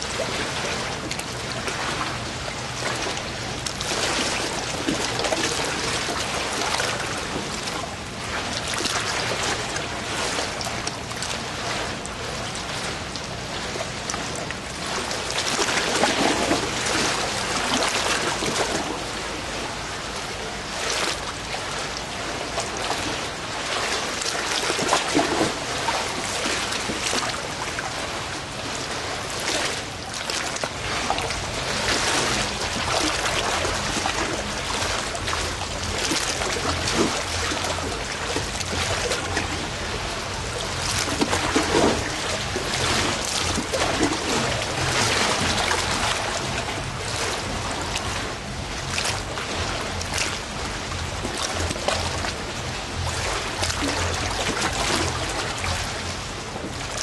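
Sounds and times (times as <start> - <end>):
water trickling and splashing: 0.0 - 57.0.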